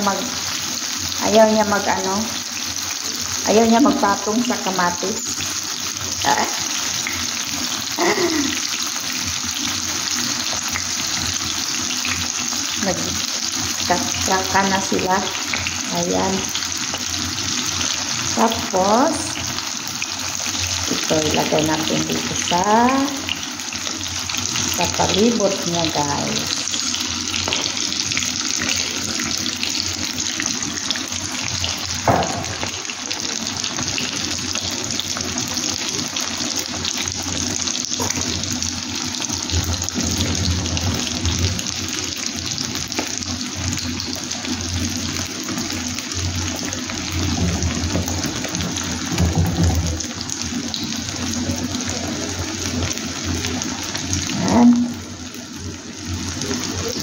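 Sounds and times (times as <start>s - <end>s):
food sizzling in oil: 0.0s - 57.0s
sharp knock: 32.0s - 32.6s.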